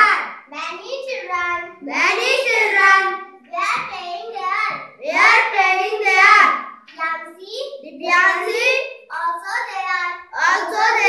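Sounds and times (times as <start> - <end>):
girl reading aloud in sing-song: 0.0 - 11.0.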